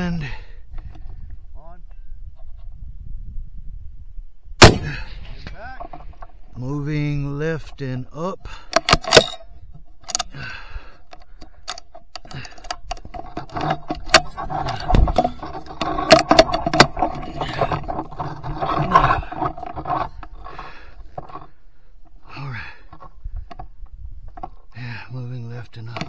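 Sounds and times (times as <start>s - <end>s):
rifle handling clicks and rattling: 8.7s - 10.3s, 11.1s - 21.5s.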